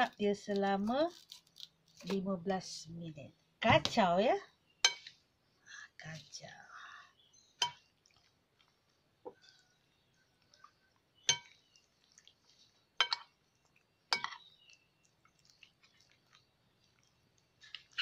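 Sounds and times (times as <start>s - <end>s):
metal spoon clinking on glass bowl: 4.8s - 5.1s, 11.3s - 11.6s, 13.0s - 13.3s, 14.1s - 14.4s
faint scraping and taps: 7.6s - 13.3s.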